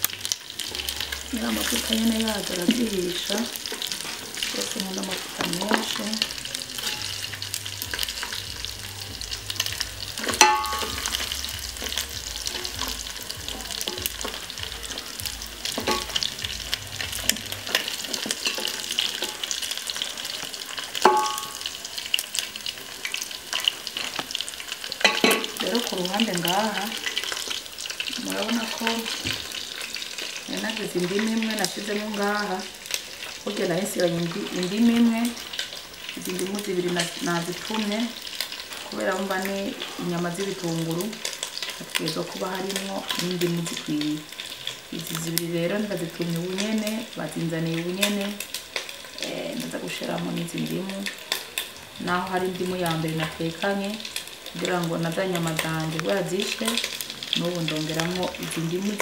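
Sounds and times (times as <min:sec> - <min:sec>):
meat sizzling in a pot: 0:00.0 - 0:59.0
spatula knocking on pot: 0:10.2 - 0:11.2, 0:15.7 - 0:16.2, 0:21.0 - 0:21.6.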